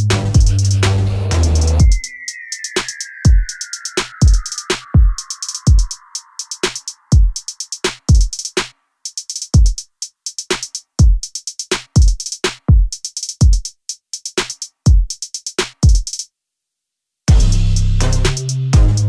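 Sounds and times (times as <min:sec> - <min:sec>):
music with sustained bass notes: 0:00.0 - 0:01.9, 0:17.3 - 0:19.0
drum machine beat: 0:00.0 - 0:16.2, 0:17.3 - 0:19.0.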